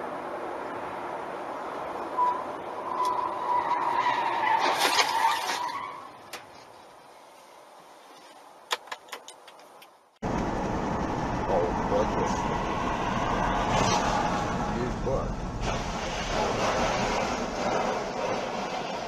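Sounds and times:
road noise: 0.0 - 19.0
tyres squealing: 2.2 - 6.4
car crash: 3.2 - 6.2, 12.2 - 19.0.

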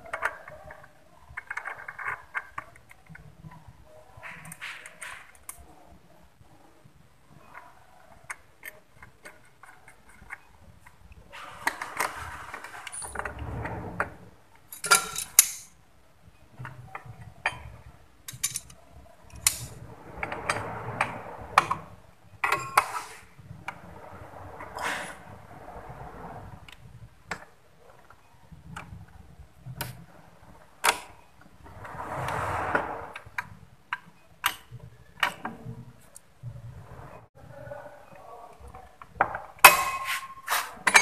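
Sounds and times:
sharp metal clanks: 39.6 - 41.0.

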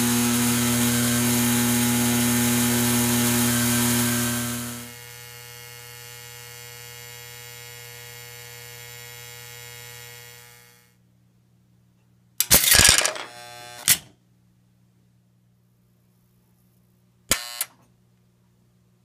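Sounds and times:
electrical hum: 0.0 - 5.8.

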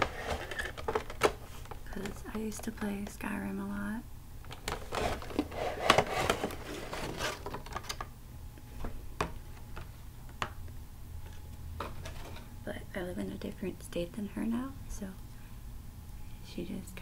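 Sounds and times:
plastic packaging crinkling: 4.5 - 8.1.

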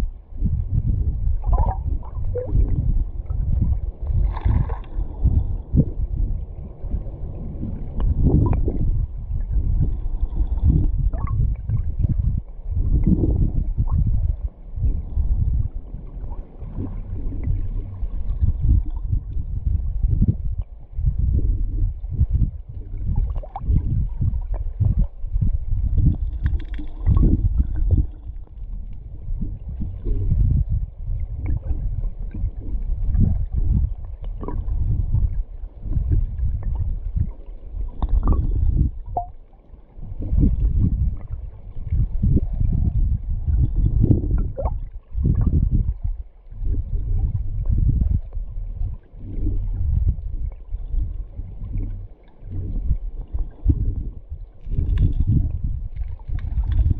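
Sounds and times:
underwater river current rumble: 0.0 - 56.9.

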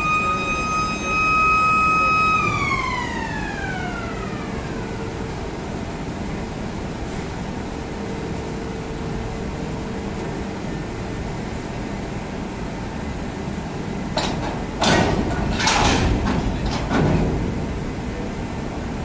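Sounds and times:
machinery humming: 0.0 - 19.0
metallic clanking and scraping: 14.2 - 17.6.

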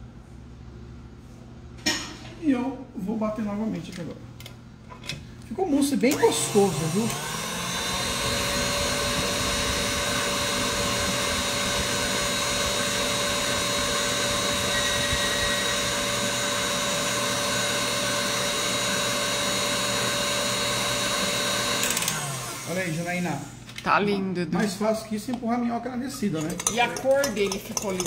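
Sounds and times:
stand mixer motor whine: 6.0 - 23.6.

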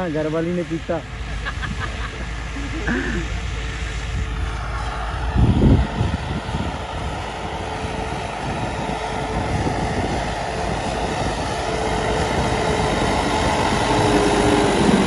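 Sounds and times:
tractor diesel engine droning: 0.0 - 15.0
wind gust on microphone: 4.0 - 15.0.

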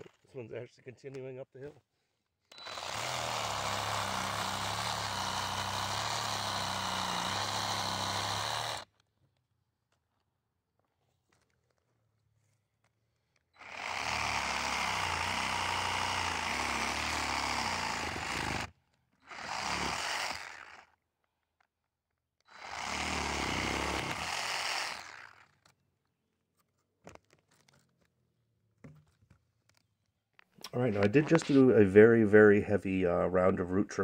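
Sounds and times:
reciprocating saw cutting roots: 2.5 - 8.9, 13.6 - 21.0, 22.5 - 25.7.

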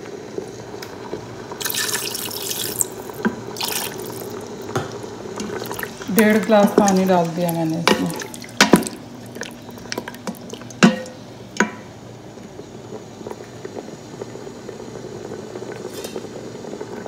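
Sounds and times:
curry bubbling: 0.2 - 17.0
wooden spatula knocking on metal pot: 7.8 - 9.0, 10.8 - 11.8.

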